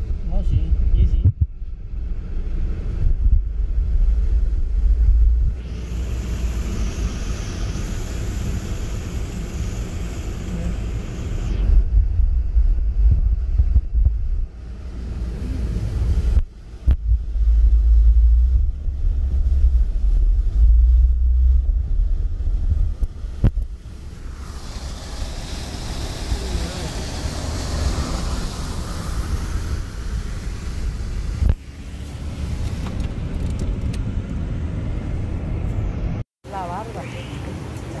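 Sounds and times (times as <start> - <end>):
wind buffeting microphone: 0.0 - 9.8, 11.4 - 36.2
vehicle rumble: 0.0 - 38.0
tyres hissing through water: 5.6 - 11.5, 23.8 - 32.8.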